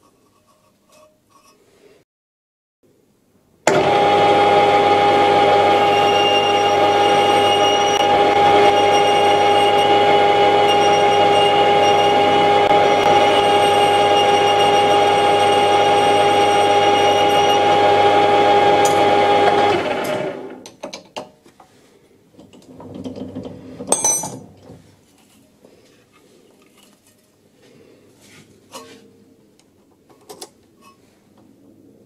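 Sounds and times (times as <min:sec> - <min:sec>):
metal lathe whining: 0:03.7 - 0:20.6.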